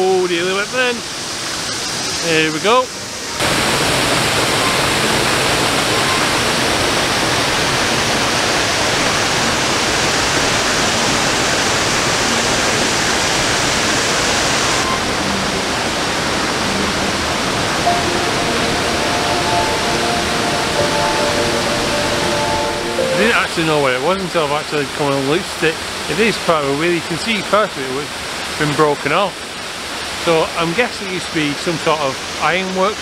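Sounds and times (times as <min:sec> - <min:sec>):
waterfall rushing: 0:00.0 - 0:33.0
faint steady tones: 0:14.8 - 0:24.6.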